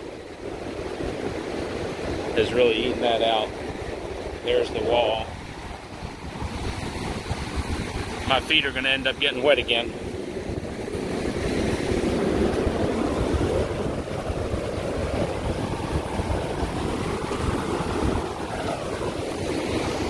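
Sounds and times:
surf washing up beach: 0:00.0 - 0:20.0
wind buffeting microphone: 0:00.0 - 0:20.0.

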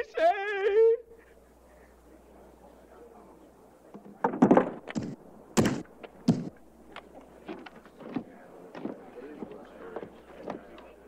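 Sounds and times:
heavy thuds and knocks: 0:04.0 - 0:06.6.

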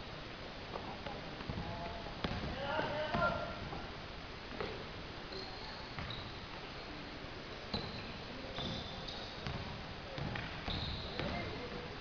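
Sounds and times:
basketball bouncing on wooden floor: 0:01.4 - 0:03.8, 0:08.6 - 0:11.5
sneakers squeaking on floor: 0:04.6 - 0:07.0, 0:07.7 - 0:11.8.

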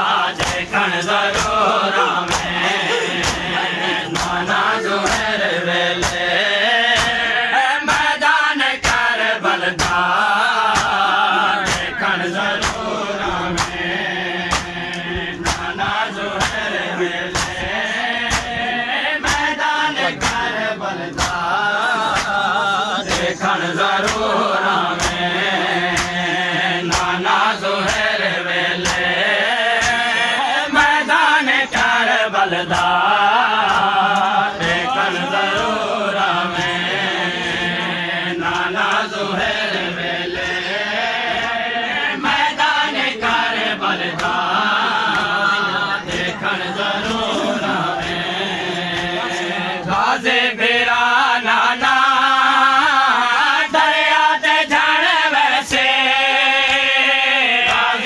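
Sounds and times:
men chanting in unison: 0:00.0 - 0:58.0.

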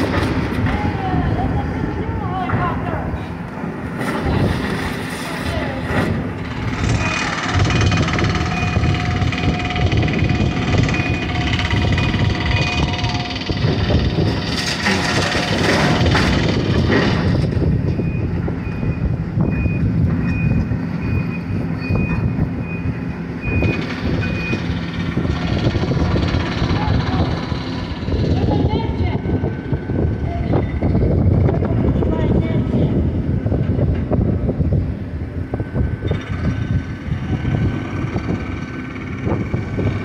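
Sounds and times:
excavator engine running: 0:00.0 - 0:40.0
backup alarm beeping: 0:06.9 - 0:13.6, 0:17.9 - 0:24.8.

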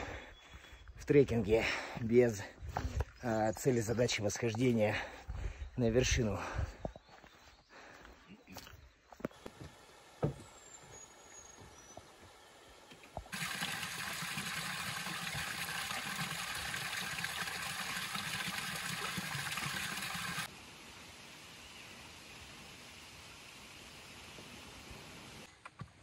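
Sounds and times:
rushing water: 0:13.2 - 0:20.5.

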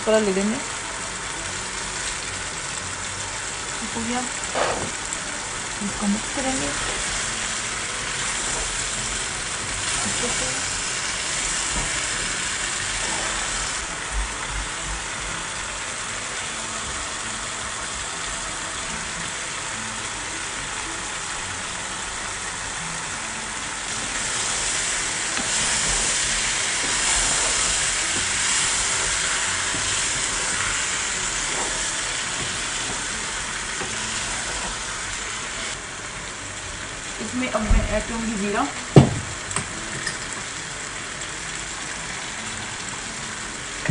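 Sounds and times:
vegetables frying in oil: 0:00.0 - 0:43.9
wooden spatula stirring: 0:24.2 - 0:34.9.

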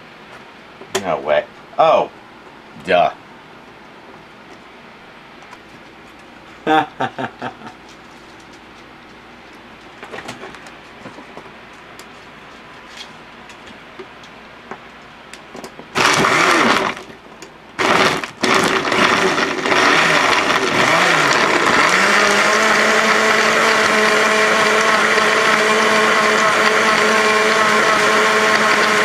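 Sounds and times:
blender motor running: 0:16.0 - 0:17.1, 0:17.8 - 0:29.0.

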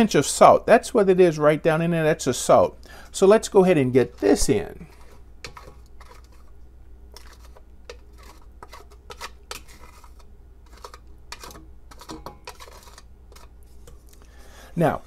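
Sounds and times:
wooden spoon scraping glass bowl: 0:04.0 - 0:06.6, 0:07.2 - 0:14.0.

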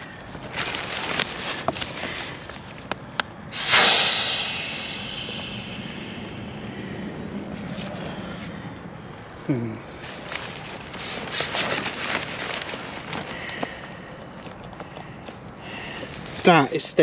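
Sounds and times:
air hissing out of valve: 0:03.5 - 0:07.4.

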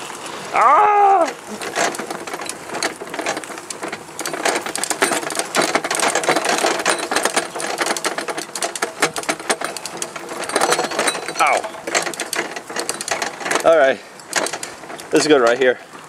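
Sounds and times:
go-kart rattling over bumpy ground: 0:00.0 - 0:16.0.

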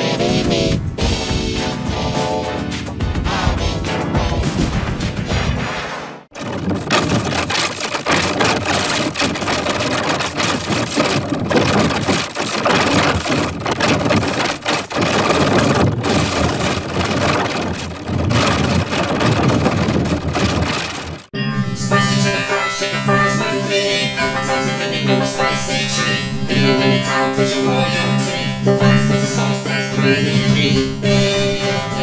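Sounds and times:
heavily distorted noisy rumble: 0:06.4 - 0:21.3.

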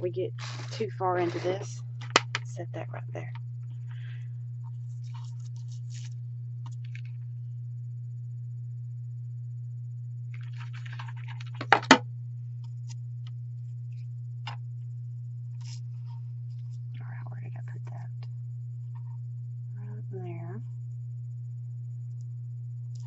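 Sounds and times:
steady low hum: 0:00.0 - 0:23.0
paper rustling and clicking: 0:10.4 - 0:12.0.

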